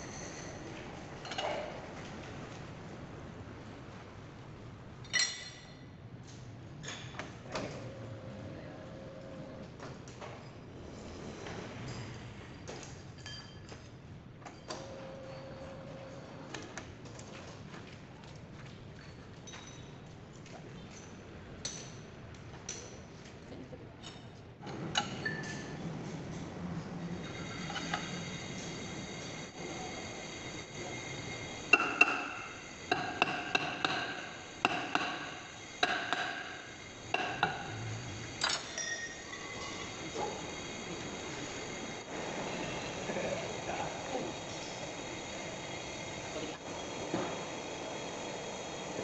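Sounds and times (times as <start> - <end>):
hammer striking metal hub: 31.7 - 36.6, 37.2 - 37.7
ringing metal clank: 38.4 - 39.8.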